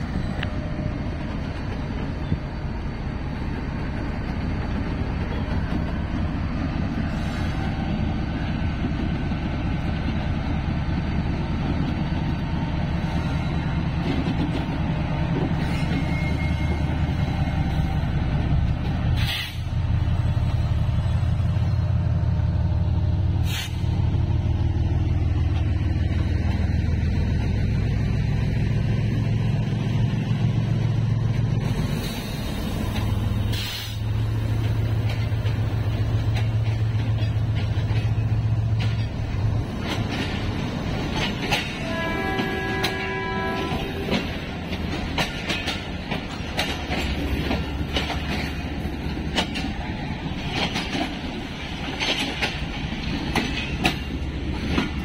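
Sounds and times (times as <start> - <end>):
locomotive engine droning: 0.0 - 55.0
air hiss: 19.2 - 19.8, 23.4 - 23.9, 31.7 - 34.2.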